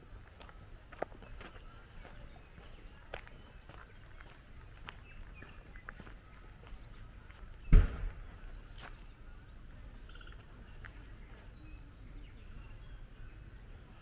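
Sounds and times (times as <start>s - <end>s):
faint footsteps on gravel: 0.0s - 11.9s
distant bird chirps: 0.2s - 14.0s
heavy thump: 7.7s - 8.3s.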